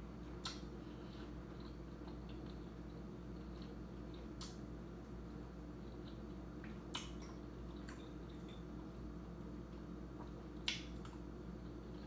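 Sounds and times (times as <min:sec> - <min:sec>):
person chewing: 0:00.2 - 0:12.0
wet mouth clicks and smacks: 0:00.4 - 0:00.7, 0:06.6 - 0:08.6.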